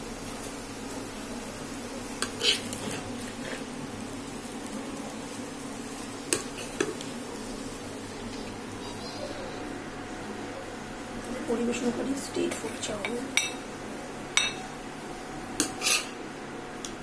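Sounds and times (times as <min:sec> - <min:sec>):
spatula stirring noodles in pan: 0:01.7 - 0:09.2, 0:15.6 - 0:16.2
spatula scraping and clinking on pan: 0:15.6 - 0:16.2.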